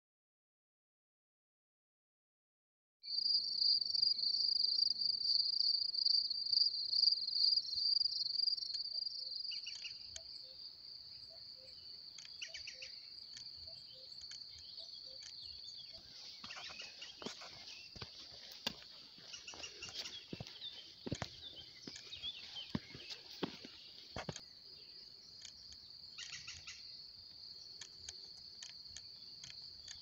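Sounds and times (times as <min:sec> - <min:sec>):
crickets trilling: 0:03.1 - 0:30.0
footsteps on stony dirt trail: 0:14.3 - 0:24.5.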